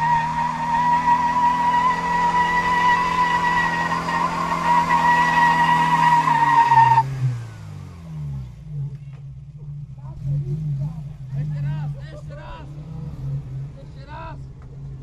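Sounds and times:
tyres squealing: 0:00.0 - 0:07.1
car engine revving: 0:00.0 - 0:15.0.

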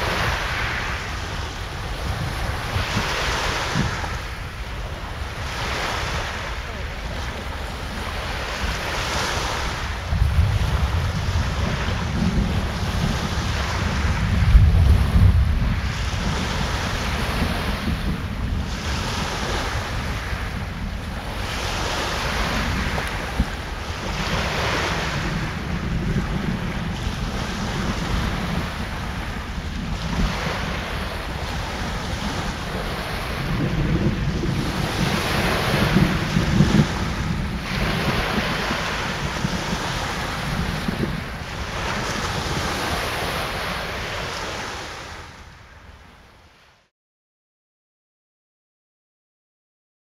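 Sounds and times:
surf hiss: 0:00.0 - 0:25.8
steady rushing noise: 0:00.0 - 0:45.4
wind buffeting microphone: 0:00.0 - 0:46.1.

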